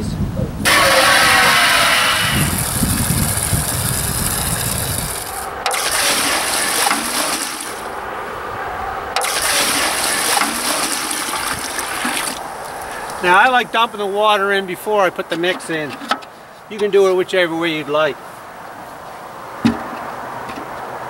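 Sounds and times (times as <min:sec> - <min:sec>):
water pouring into plastic tub: 0:00.7 - 0:07.9, 0:09.2 - 0:13.4.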